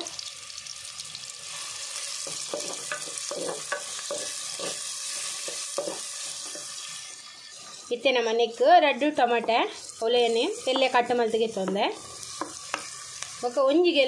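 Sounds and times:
onions sizzling in hot oil: 0:00.0 - 0:14.0
wooden spatula scraping a pot: 0:02.0 - 0:08.1, 0:09.2 - 0:13.5.

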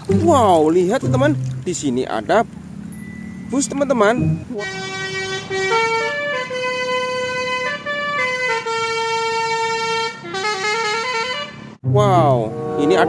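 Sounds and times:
bus air horn playing a tune: 0:04.5 - 0:11.8.

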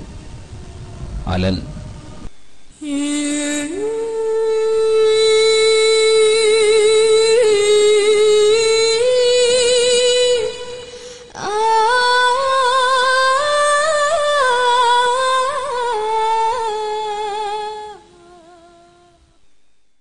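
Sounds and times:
person singing wordless melody: 0:02.8 - 0:19.4
breath: 0:10.9 - 0:11.3.

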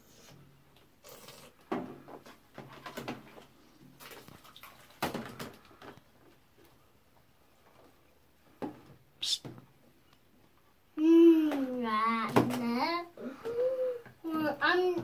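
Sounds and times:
bathwater splashing: 0:02.3 - 0:06.0
plastic toys knocking in tub: 0:05.0 - 0:06.0.

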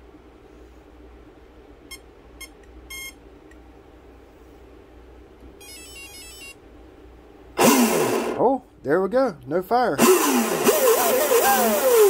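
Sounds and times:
low steady hum: 0:00.0 - 0:10.0
short high beeps: 0:01.9 - 0:03.2.

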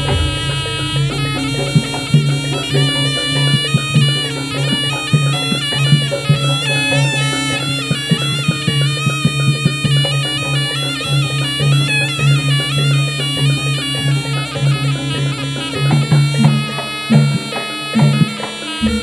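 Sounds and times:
steady low tone: 0:00.0 - 0:04.6
drum strokes: 0:00.0 - 0:10.9, 0:13.9 - 0:19.0
reedy shawm melody: 0:00.0 - 0:19.0.

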